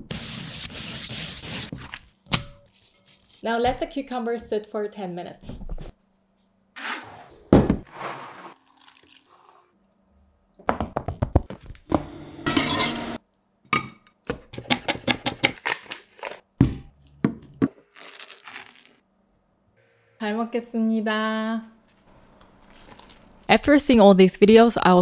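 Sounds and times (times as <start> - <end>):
wooden spoon scraping bowl: 6.8 - 8.8.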